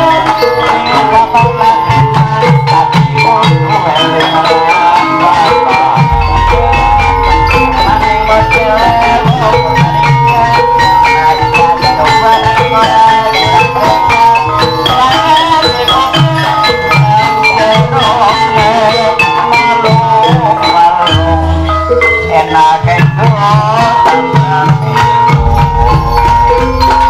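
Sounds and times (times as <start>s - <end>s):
drum strokes: 0.0s - 21.0s, 23.2s - 27.0s
wavering held melody: 0.0s - 23.0s, 24.1s - 27.0s
metallophones playing struck notes: 0.0s - 27.0s.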